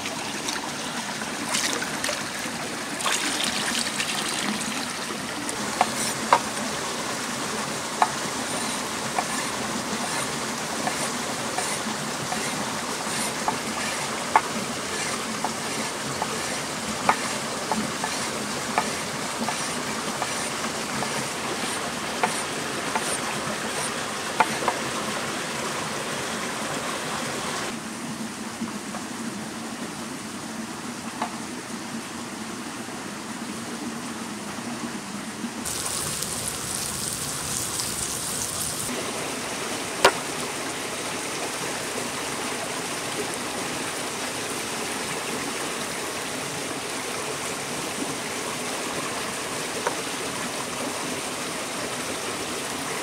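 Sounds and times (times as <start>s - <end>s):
wood fire crackling: 35.7s - 38.9s.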